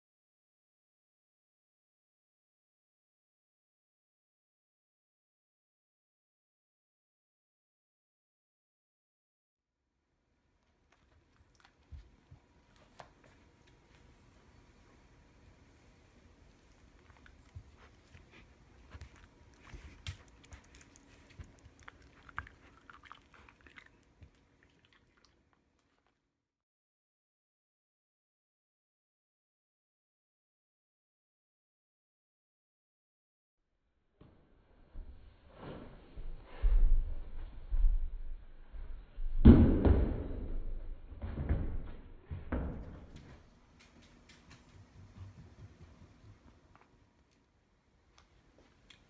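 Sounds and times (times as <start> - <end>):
dog chewing a treat: 10.9 - 12.2, 16.8 - 26.2
dog paws thumping on carpet: 16.8 - 22.8, 41.2 - 47.0.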